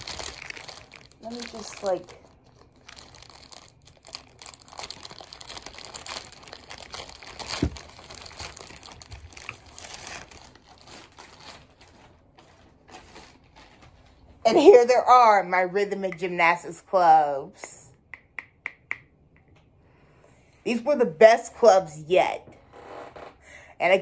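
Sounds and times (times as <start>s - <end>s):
plastic packaging crinkling: 0.0s - 14.3s.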